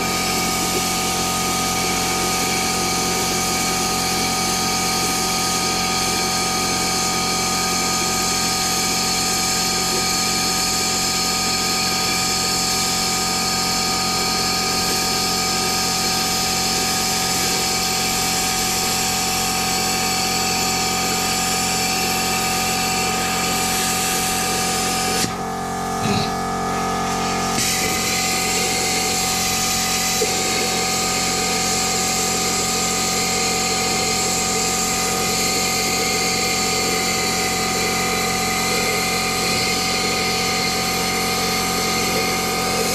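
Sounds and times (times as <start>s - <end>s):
plasma cutter hiss and buzz: 0.0s - 42.9s
steady humming tones: 24.1s - 42.9s.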